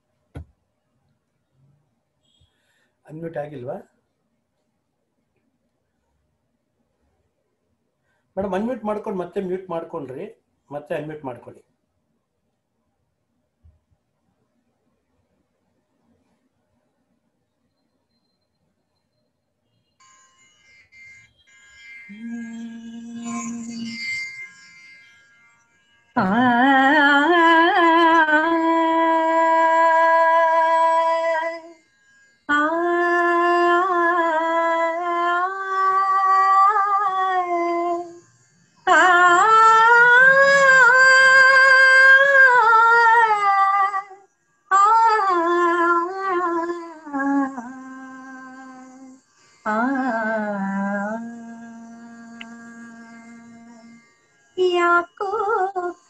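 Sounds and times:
woman singing: 22.1s - 24.2s, 26.2s - 31.7s, 32.5s - 38.2s, 38.9s - 53.9s, 54.6s - 56.0s.

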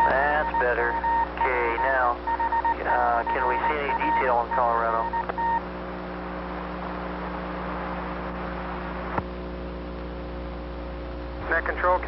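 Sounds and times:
radio click: 0.0s - 1.9s, 2.8s - 5.4s
radio hiss: 0.0s - 5.4s, 6.1s - 9.3s, 11.4s - 12.0s
steady beep tone: 0.0s - 5.6s
electrical hum: 0.0s - 12.0s.

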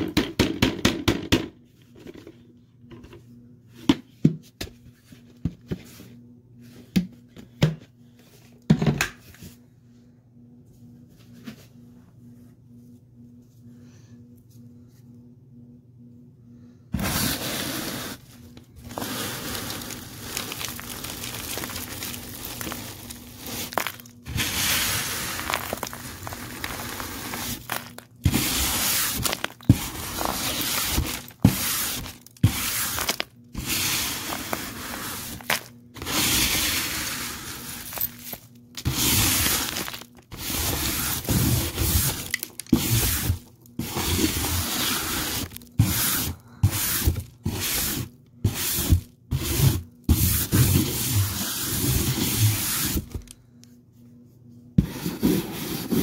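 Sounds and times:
faint low hum: 1.5s - 44.5s
vacuum cleaner sucking up debris: 17.0s - 53.2s
crunch of debris: 18.8s - 33.3s, 37.7s - 43.2s.

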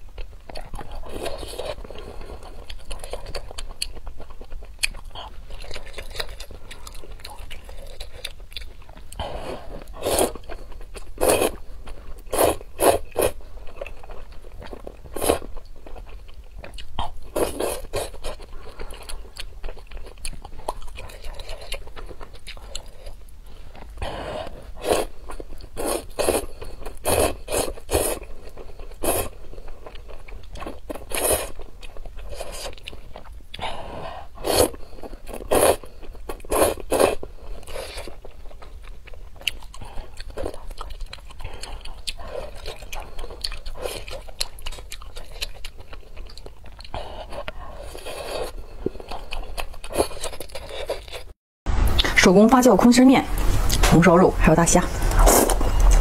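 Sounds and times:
crunching bites and chewing: 34.5s - 51.4s.

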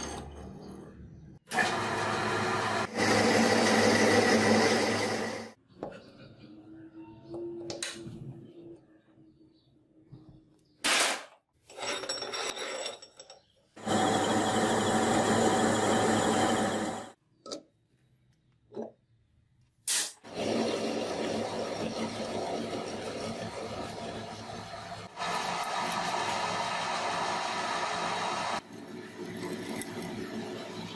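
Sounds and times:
power tool working metal: 13.8s - 17.2s.

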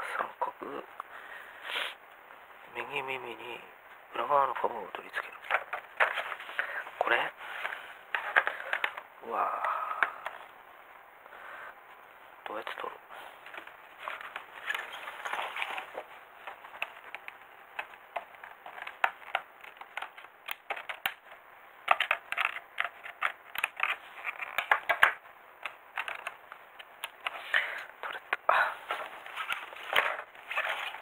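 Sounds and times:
plastic crackling: 5.0s - 10.5s, 12.4s - 31.0s.

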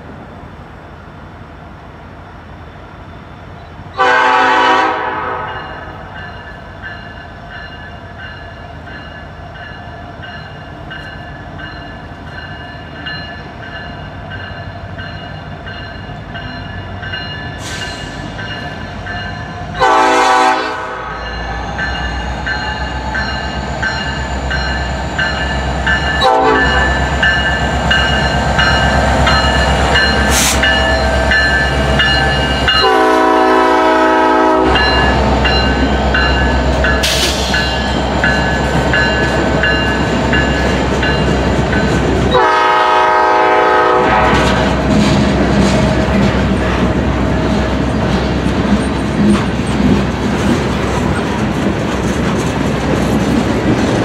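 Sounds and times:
train engine and wheel rumble: 0.0s - 54.0s
locomotive air horn: 4.0s - 5.9s, 19.8s - 21.2s, 26.2s - 27.0s, 32.8s - 35.0s, 42.3s - 44.6s.

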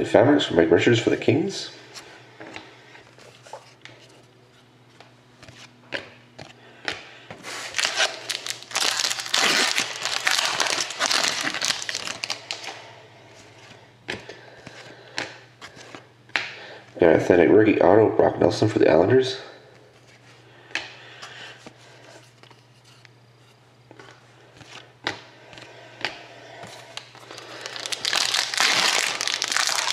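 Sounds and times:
card pack wrapper crinkling: 7.5s - 12.8s, 27.0s - 29.9s.

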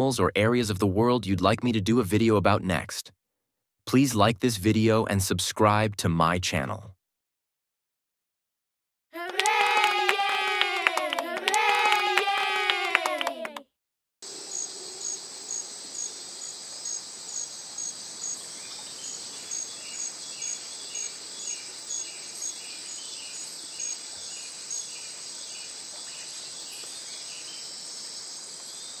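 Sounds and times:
insects droning and chirping: 14.2s - 29.0s
lower pulsing insect chirp: 14.2s - 29.0s.

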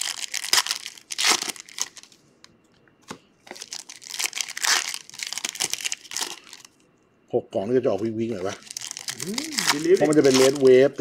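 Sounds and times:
foil wrapper crinkling and tearing: 0.0s - 2.2s, 3.5s - 6.8s, 8.4s - 11.0s.

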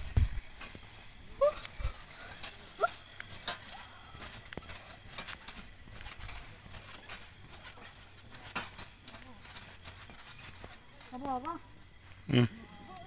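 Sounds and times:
trampoline springs clinking and creaking: 0.0s - 13.0s.

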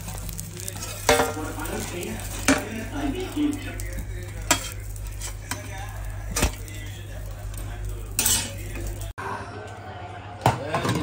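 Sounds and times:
light sizzle: 0.0s - 9.2s
metal spatula scraping pan: 4.3s - 9.0s.

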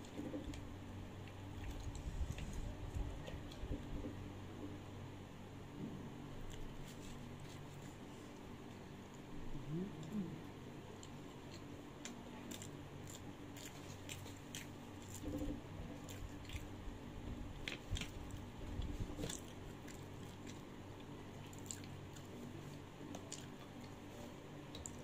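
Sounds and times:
steady low hum: 0.0s - 25.0s
person chewing food: 10.9s - 25.0s.

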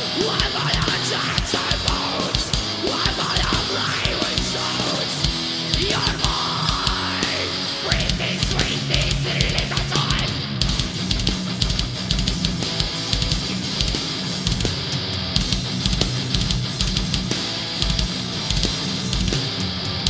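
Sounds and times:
distorted electric guitars: 0.0s - 20.0s
kick drum beat: 15.4s - 19.3s.

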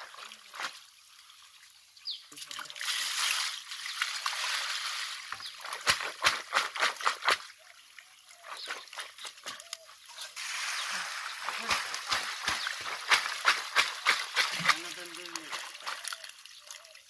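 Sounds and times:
water splashing from a bucket: 0.0s - 17.0s
fish slapping and knocking in crate: 4.2s - 7.5s, 10.4s - 16.2s.

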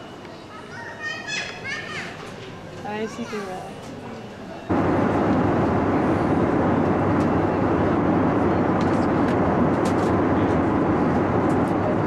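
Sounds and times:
airliner cabin roar: 4.7s - 12.0s.

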